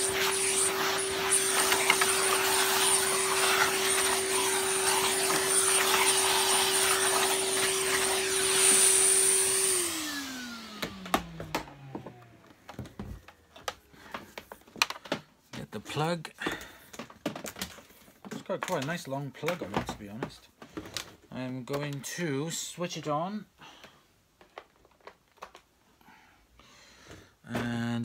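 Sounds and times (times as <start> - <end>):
vacuum cleaner running: 0.0 - 14.2.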